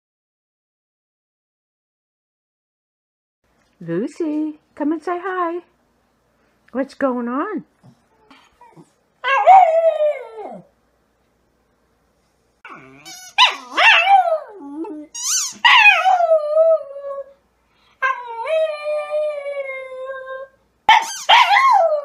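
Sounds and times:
dog yelping: 8.2s - 9.8s, 12.7s - 16.3s, 20.9s - 22.0s
small dog howling: 8.3s - 10.7s, 12.7s - 17.4s, 18.0s - 22.0s.

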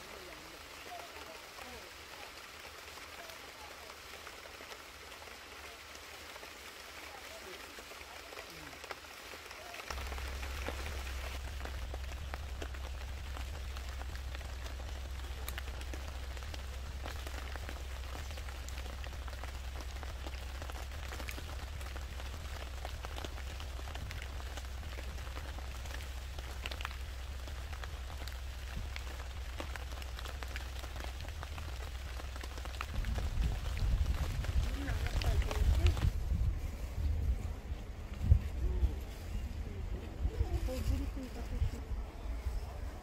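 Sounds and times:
rain falling: 0.0s - 43.0s
raindrops ticking on a surface: 0.0s - 43.0s
steady low hum: 9.9s - 34.9s.

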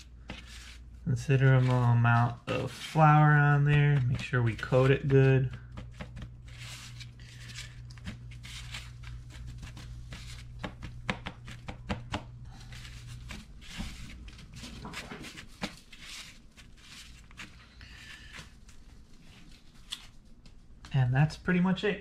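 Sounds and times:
low steady hum: 0.0s - 22.0s
hands patting fish in flour: 2.9s - 18.6s.

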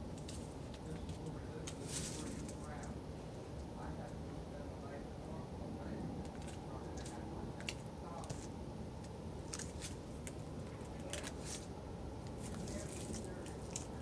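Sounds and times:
deer crunching while feeding: 0.0s - 3.0s, 6.2s - 14.0s
steady low hum: 0.0s - 14.0s.

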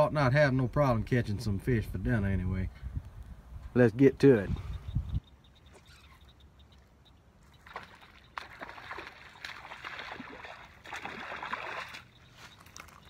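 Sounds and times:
fish splashing in water: 7.5s - 13.0s.

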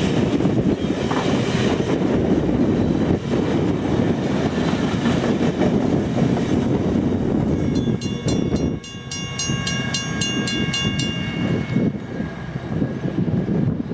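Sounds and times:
train cars rolling past: 0.0s - 13.9s
level-crossing bell ringing: 7.5s - 12.1s.

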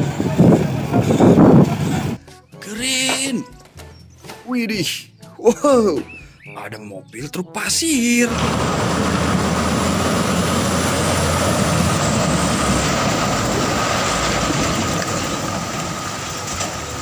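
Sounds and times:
diesel truck engine running: 0.0s - 2.3s, 7.9s - 17.0s.

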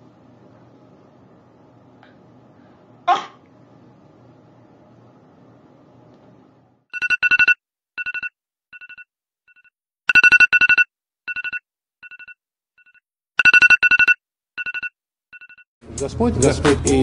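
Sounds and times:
high electronic alarm beeps: 7.0s - 15.6s.

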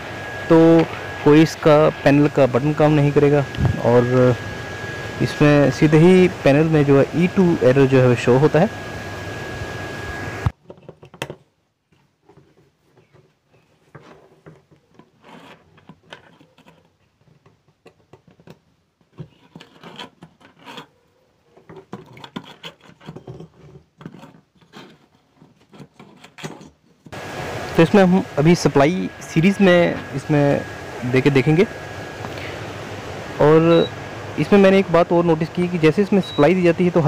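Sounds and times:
objects scraping on wooden table: 13.9s - 17.0s, 19.2s - 21.0s, 21.6s - 26.8s.

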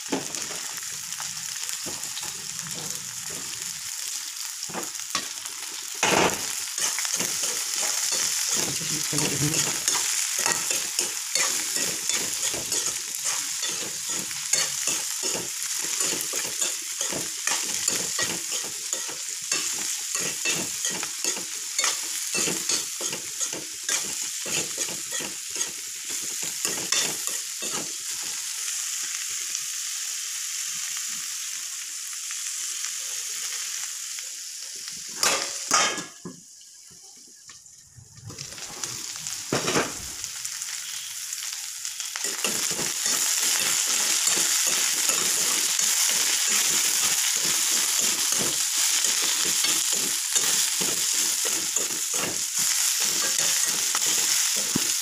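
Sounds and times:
vegetables sizzling in oil: 0.0s - 55.0s
metal spatula scraping pan: 9.6s - 25.8s.

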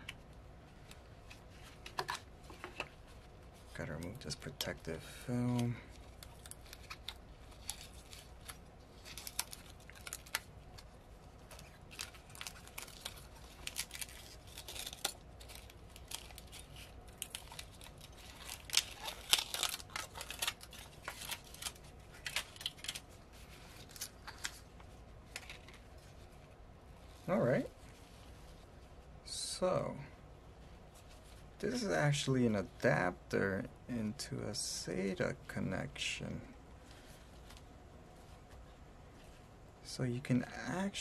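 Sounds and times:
protective film crinkling and tearing: 0.0s - 29.7s.

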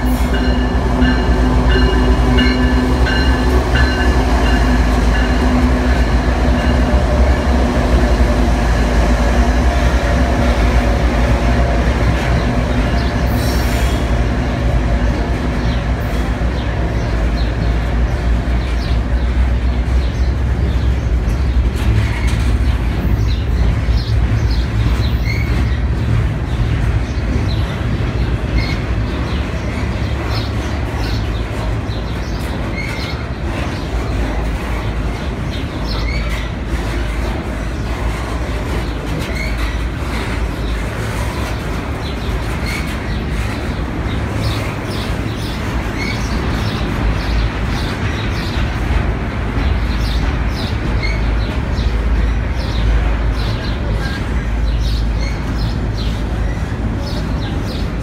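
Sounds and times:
train wheels rumbling on rails: 0.0s - 58.0s.

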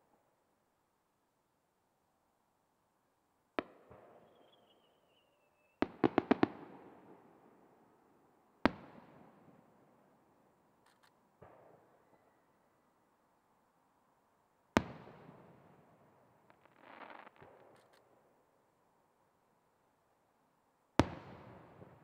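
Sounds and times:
falling firework whistle: 4.2s - 5.8s.

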